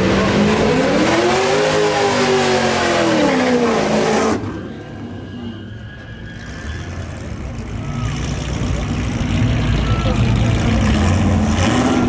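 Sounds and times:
car engine revving high: 0:00.0 - 0:04.5, 0:10.3 - 0:12.0
engine rumble: 0:00.0 - 0:12.0
tires spinning: 0:00.0 - 0:12.0.

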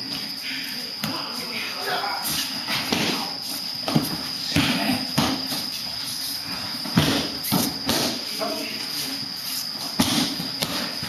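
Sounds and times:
thuds and slaps of falls: 0:10.0 - 0:10.8.

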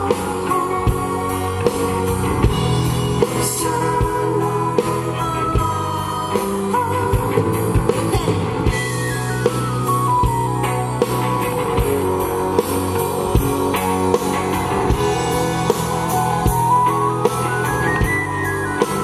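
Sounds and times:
man singing into a microphone: 0:00.0 - 0:02.1, 0:03.2 - 0:08.9
live rock band playing: 0:00.0 - 0:19.0.

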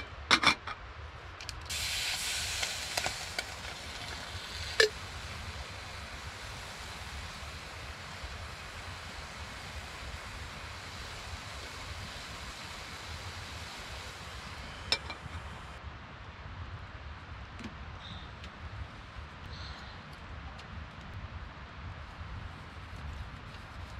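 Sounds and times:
patty sizzling in pot: 0:01.7 - 0:15.8.

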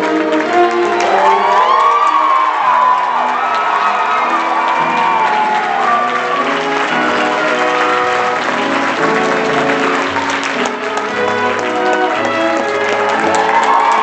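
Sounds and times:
audience applause: 0:00.0 - 0:14.0
stage musical music: 0:00.0 - 0:14.0.

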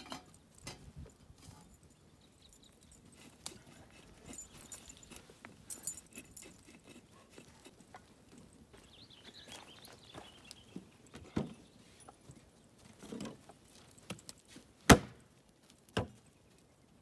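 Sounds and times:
light metallic clinks: 0:00.0 - 0:09.6.

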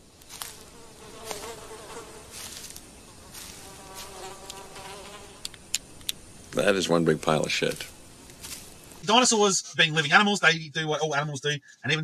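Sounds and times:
flies buzzing: 0:00.0 - 0:06.7.

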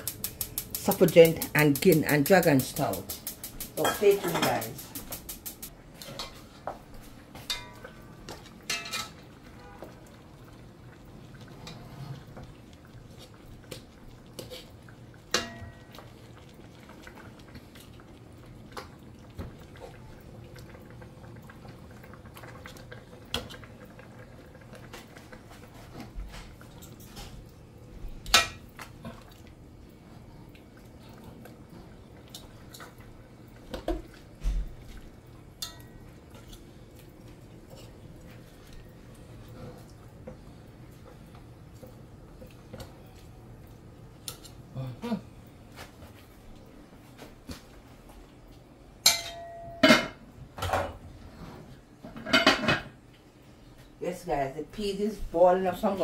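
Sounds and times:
pots and utensils clinking: 0:00.0 - 0:09.8, 0:13.6 - 0:16.2, 0:28.2 - 0:29.4, 0:35.5 - 0:36.6, 0:49.0 - 0:51.0, 0:52.0 - 0:53.0.

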